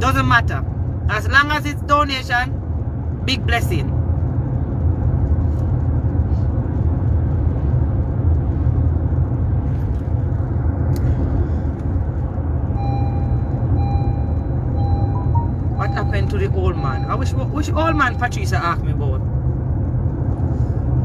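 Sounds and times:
car cabin engine and road rumble: 0:00.0 - 0:21.0
faint repeating beep: 0:12.8 - 0:18.8.

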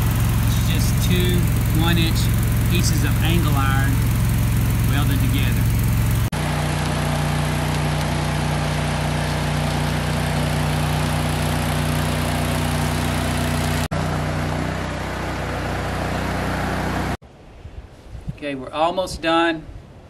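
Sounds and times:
welding arc hiss: 0:00.0 - 0:06.3
welding machine hum: 0:00.0 - 0:17.2.

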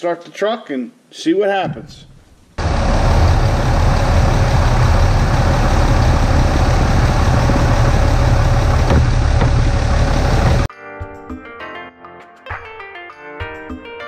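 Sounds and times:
diesel engine idling: 0:02.6 - 0:10.7.

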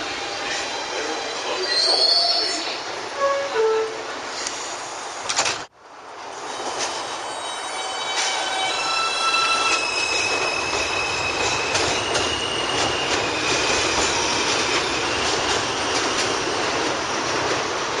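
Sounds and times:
subway train rumbling: 0:00.0 - 0:18.0
high wheel squeal: 0:07.4 - 0:16.0.

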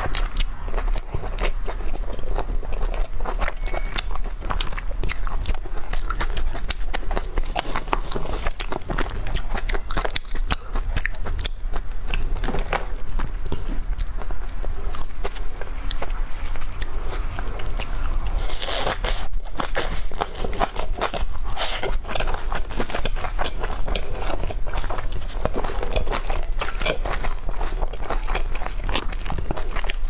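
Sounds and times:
crunchy chewing: 0:00.0 - 0:30.0.

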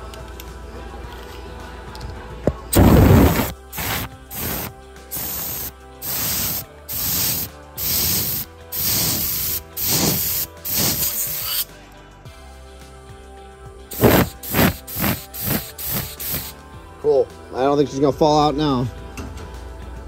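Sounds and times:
compressed air bursts hissing: 0:02.8 - 0:11.7, 0:13.9 - 0:16.6.

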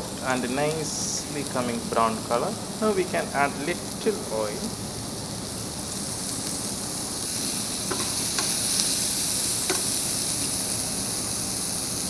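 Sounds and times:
onions sizzling in frying pan: 0:00.0 - 0:12.0
utensil ticking against pan: 0:07.9 - 0:08.6, 0:09.7 - 0:09.9.

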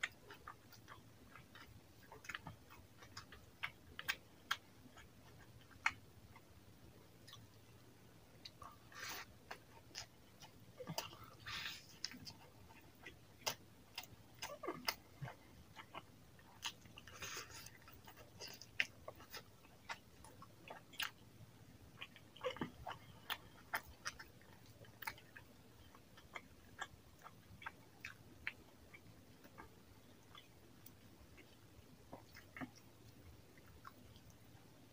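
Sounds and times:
wet chewing smacks: 0:00.0 - 0:06.5, 0:08.4 - 0:34.8.

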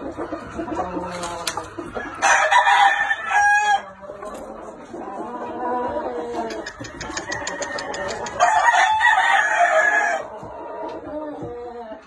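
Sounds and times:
rooster crowing: 0:02.2 - 0:03.8, 0:07.1 - 0:10.3.

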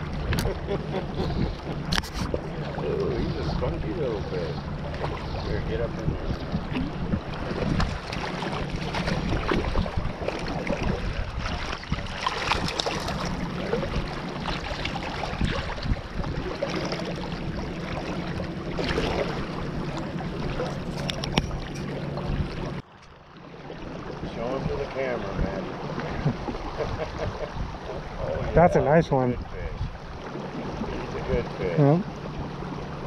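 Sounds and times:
creek water running: 0:00.0 - 0:33.0
sharp splashes of fish: 0:07.8 - 0:13.3.

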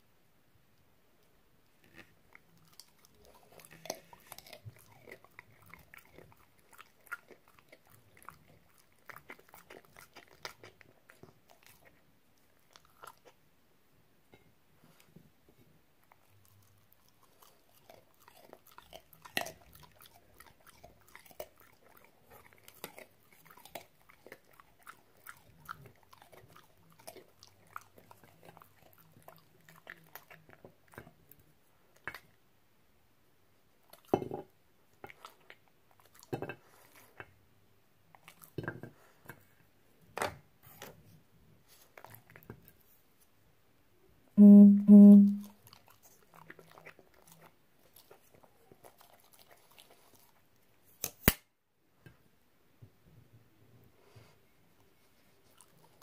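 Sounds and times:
dog chewing carrot: 0:01.8 - 0:13.4, 0:16.0 - 0:32.2, 0:34.9 - 0:37.4, 0:45.5 - 0:51.0
loud low tone: 0:44.4 - 0:45.4.

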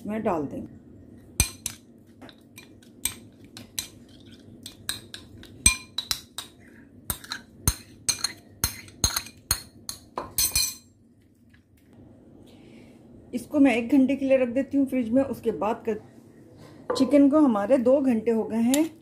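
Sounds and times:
spoon clinking ceramic bowl: 0:04.6 - 0:10.9.

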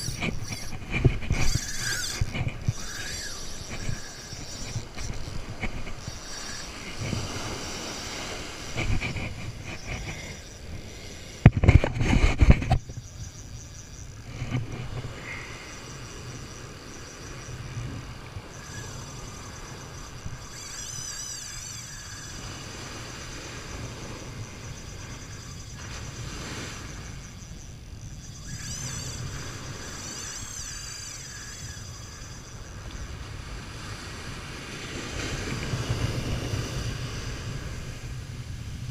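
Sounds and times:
wind on microphone: 0:00.0 - 0:38.9
ocean surf on beach: 0:02.2 - 0:20.4, 0:22.4 - 0:28.0, 0:32.1 - 0:38.9.

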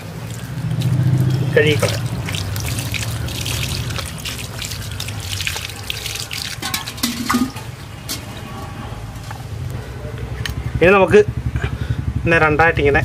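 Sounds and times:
water splashing and dripping: 0:00.0 - 0:08.6.

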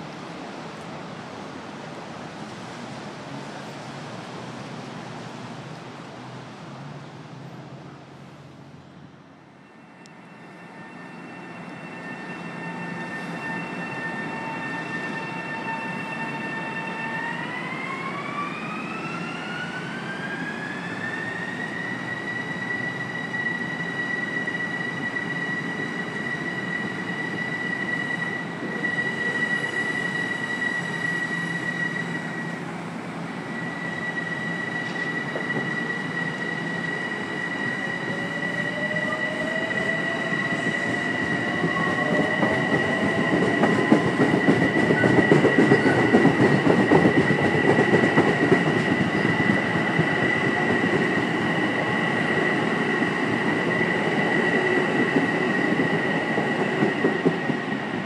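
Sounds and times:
rumble of train cars: 0:00.0 - 0:58.0
train traction motor whine: 0:09.5 - 0:57.9.

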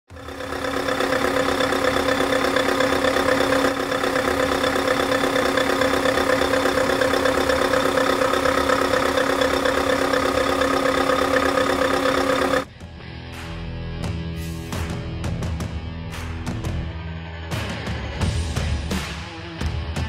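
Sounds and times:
diesel truck engine idling: 0:00.1 - 0:12.7.

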